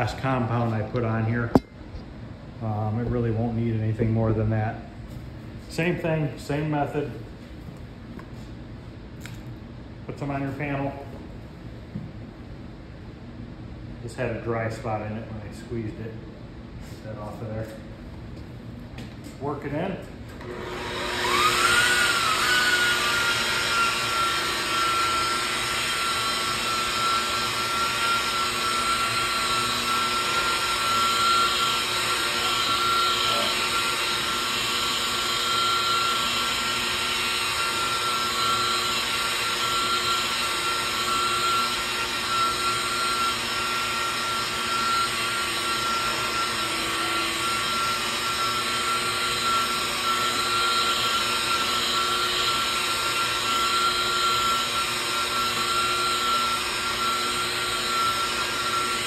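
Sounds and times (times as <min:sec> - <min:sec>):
rotary polisher motor whine: 0:20.4 - 0:59.0.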